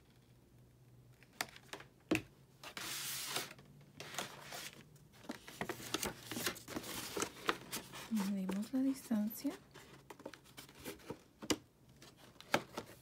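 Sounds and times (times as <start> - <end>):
paper rustling and sliding: 2.6 - 8.7.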